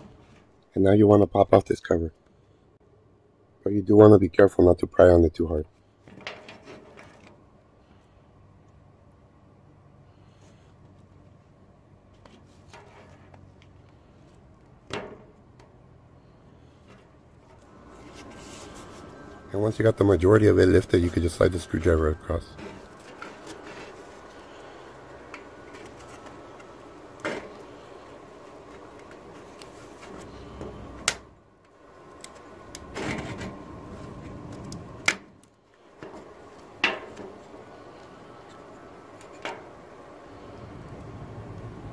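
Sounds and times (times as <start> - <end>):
scraping rustle: 5.8 - 8.1, 12.0 - 14.4, 16.2 - 30.9, 32.3 - 34.9.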